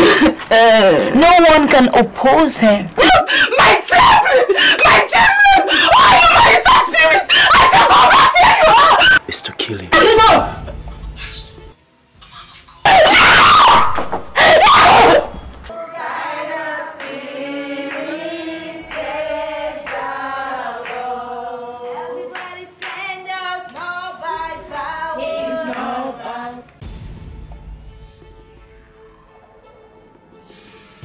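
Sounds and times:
loud screams: 3.4s - 9.2s, 12.8s - 16.2s
voices singing slow melody: 15.7s - 26.8s.

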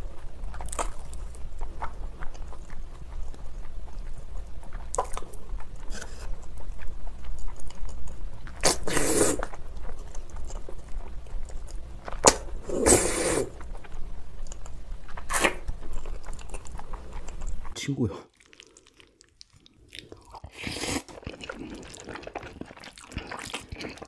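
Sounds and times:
wet chewing and mouth clicks: 0.0s - 12.6s, 13.4s - 24.0s
slurping noodles: 8.6s - 9.5s, 12.6s - 13.6s, 20.4s - 24.0s.

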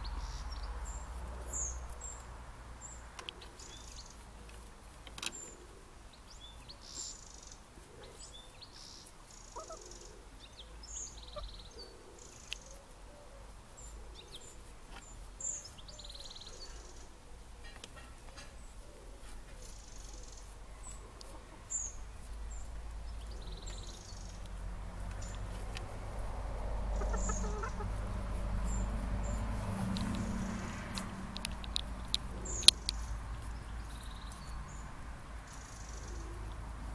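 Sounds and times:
hens clucking: 26.8s - 28.8s.

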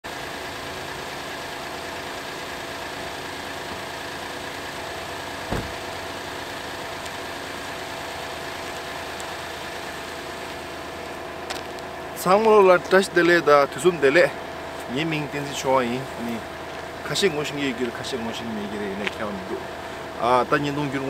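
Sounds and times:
car engine idling: 0.1s - 21.0s
short thump: 5.5s - 6.0s.

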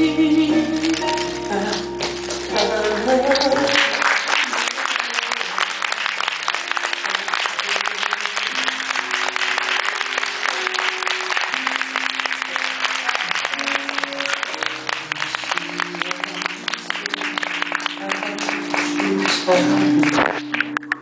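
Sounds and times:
soft instrumental music: 0.0s - 21.0s
audience applauding: 0.8s - 21.0s.

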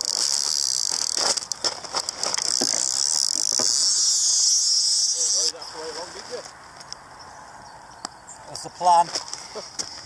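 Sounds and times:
fishing reel clicker ratcheting: 0.0s - 5.6s.

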